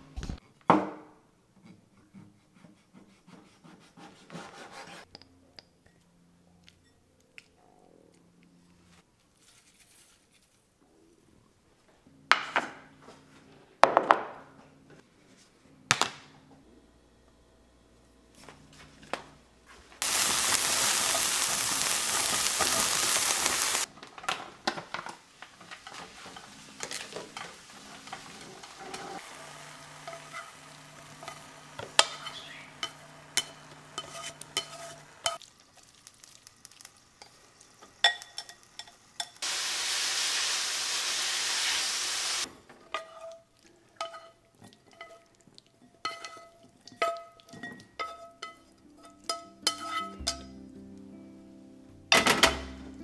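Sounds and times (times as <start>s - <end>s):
meat sizzling in a pan: 20.0s - 23.9s, 25.3s - 42.5s.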